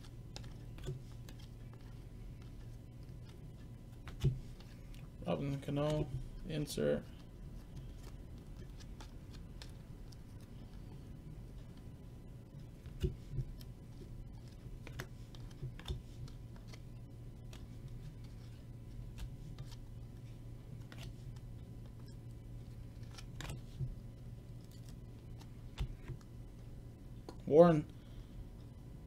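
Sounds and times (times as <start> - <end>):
low steady hum: 0.0 - 29.0
cards being flipped through: 0.3 - 6.2, 7.1 - 11.0, 12.7 - 22.1, 22.7 - 24.0.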